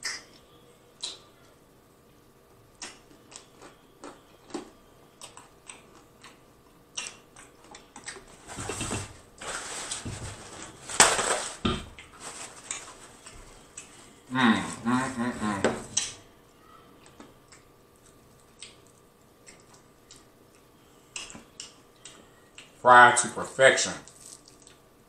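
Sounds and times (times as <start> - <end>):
lip smacks and chewing: 2.8 - 8.3, 17.0 - 22.8
paper towel rustling: 8.3 - 15.9.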